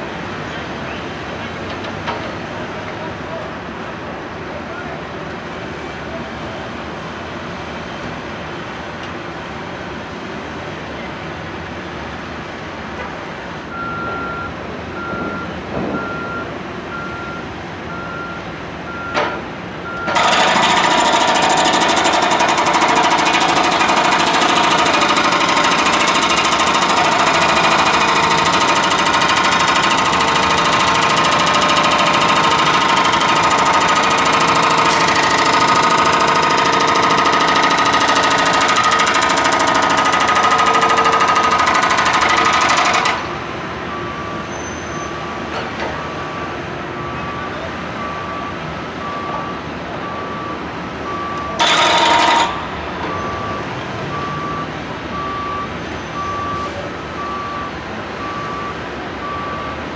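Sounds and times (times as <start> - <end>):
hydraulic hammer breaking pavement: 20.1 - 43.4, 51.6 - 52.7.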